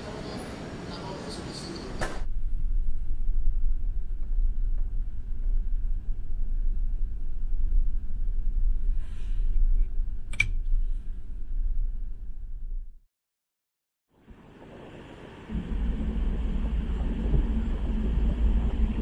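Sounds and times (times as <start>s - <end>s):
sharp click: 10.3s - 10.6s
low rumble aboard ferry: 14.2s - 19.0s.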